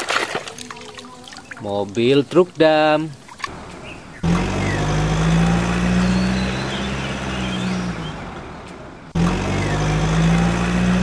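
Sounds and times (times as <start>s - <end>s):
truck engine running: 3.5s - 11.0s.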